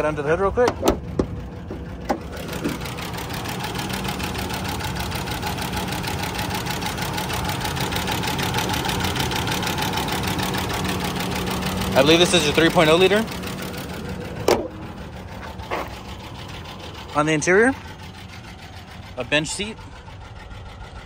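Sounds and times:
car engine idling with ticking: 0.0s - 21.0s
car hood clicks: 0.6s - 2.8s, 14.4s - 14.8s.

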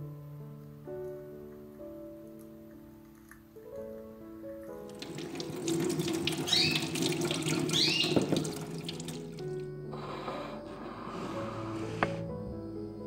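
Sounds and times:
soft piano music: 0.0s - 13.0s
water running into a sink: 4.9s - 9.6s.

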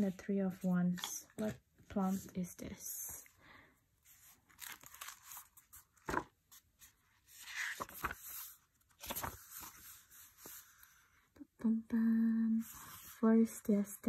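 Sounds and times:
paper rustling and pages flipping: 4.0s - 11.1s.

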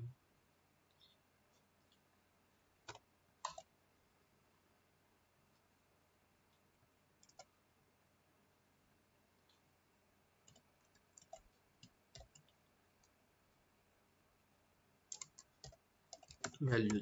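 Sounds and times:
faint keyboard keystrokes: 2.8s - 3.7s, 15.1s - 17.0s.

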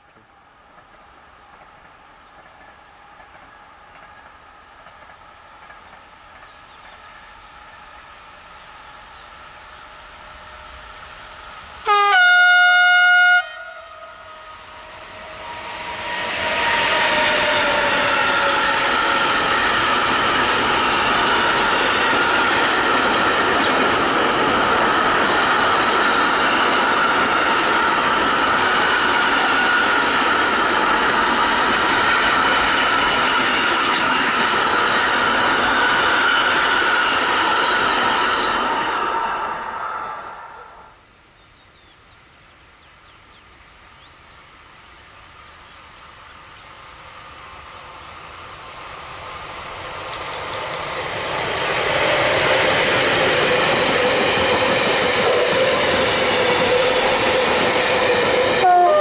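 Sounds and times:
freight train rolling past: 0.0s - 41.0s, 45.3s - 59.0s
locomotive horn blast: 11.8s - 17.6s, 58.5s - 59.0s.

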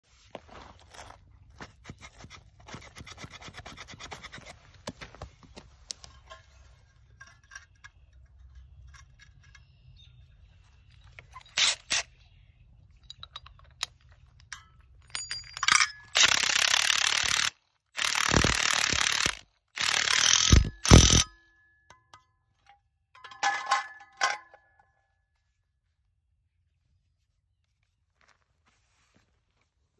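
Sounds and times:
impact driver running in bursts: 16.2s - 21.2s.

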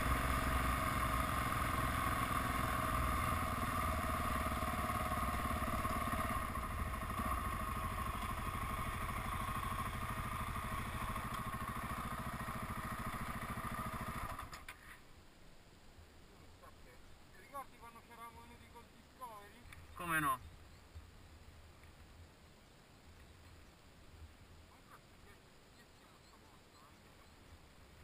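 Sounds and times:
motorcycle engine running: 0.0s - 14.6s.

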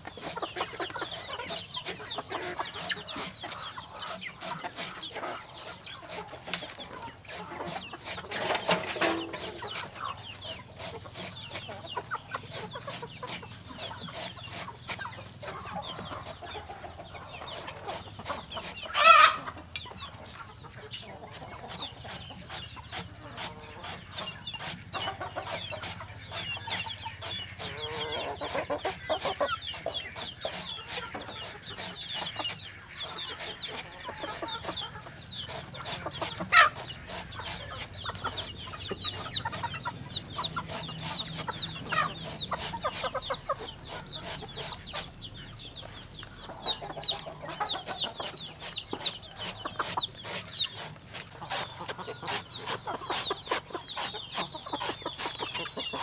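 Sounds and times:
chickens clucking: 0.0s - 56.0s
loud chicken call: 18.9s - 19.5s.

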